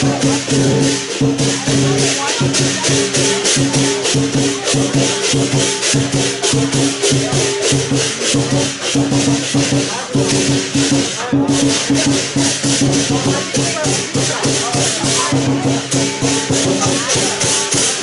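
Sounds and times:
cymbals clashing: 0.0 - 18.0
drum beating fast: 0.0 - 18.0
gong: 0.0 - 18.0.

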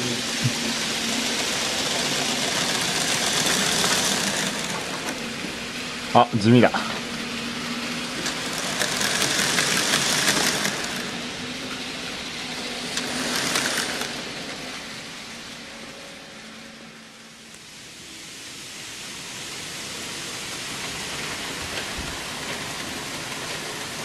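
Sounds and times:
model train wheels rattling: 0.0 - 6.1, 6.9 - 15.6.

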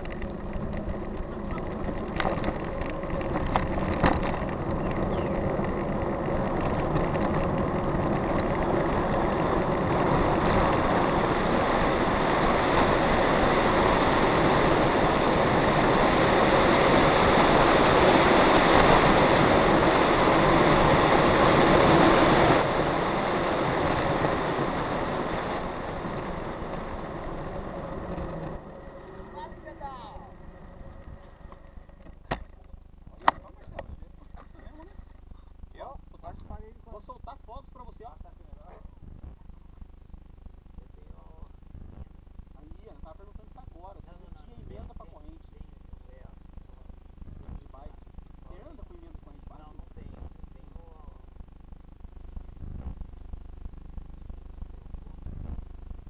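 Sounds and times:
wind rushing over microphone: 0.0 - 32.4
bike tyres on paved road: 0.0 - 34.3.

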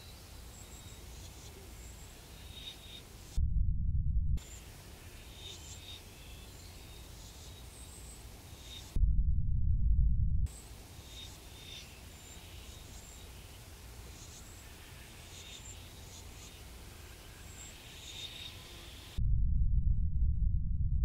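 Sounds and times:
high chirps from small animals: 0.0 - 3.4, 10.5 - 19.2
loud low rumble: 3.4 - 4.4, 9.0 - 10.5, 19.2 - 21.0.

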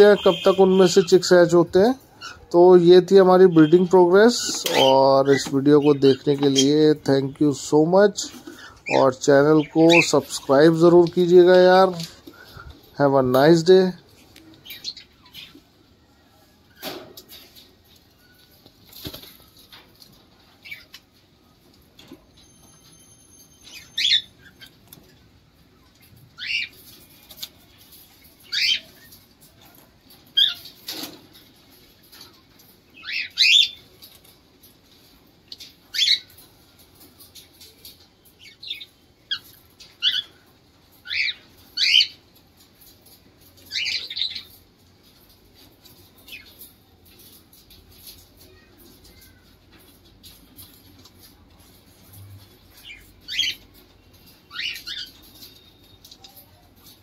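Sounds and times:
wings fluttering: 17.2 - 20.9
cockatiels calling shrilly: 23.6 - 24.8, 26.4 - 26.8, 52.8 - 53.6, 54.3 - 56.2.

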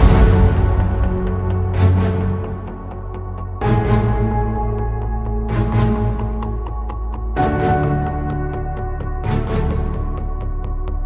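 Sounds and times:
percussion hit: 0.0 - 3.0
background music with bass chords: 0.0 - 11.0.

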